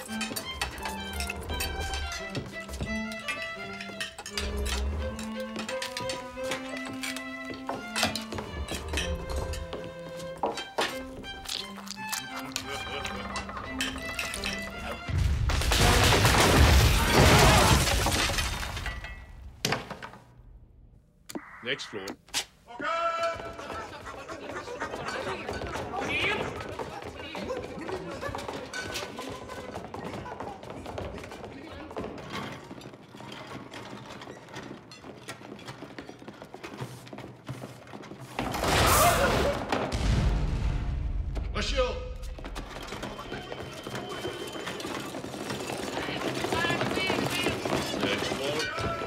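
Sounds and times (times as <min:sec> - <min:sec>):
structure crashing and dishes smashing: 0:12.8 - 0:20.2, 0:38.4 - 0:40.3, 0:42.5 - 0:49.0
debris rumbling down: 0:14.4 - 0:19.7, 0:38.4 - 0:48.7
footsteps echoing in a hall: 0:23.0 - 0:38.4, 0:42.2 - 0:49.0.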